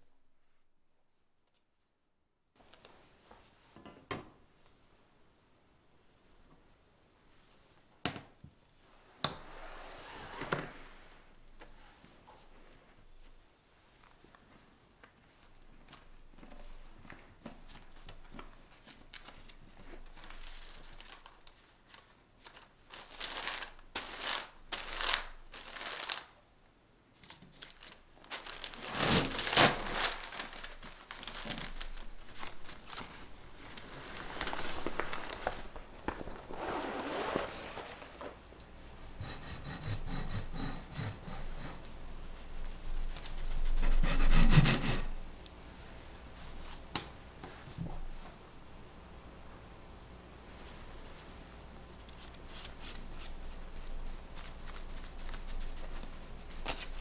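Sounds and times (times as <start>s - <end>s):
baking paper rustling and crinkling: 15.1s - 26.4s, 27.1s - 38.4s.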